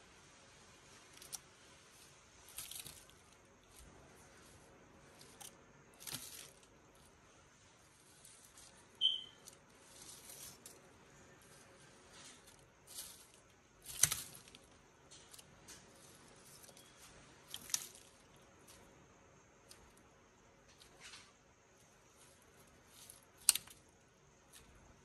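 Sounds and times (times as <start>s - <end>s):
high chirp: 9.0s - 9.6s.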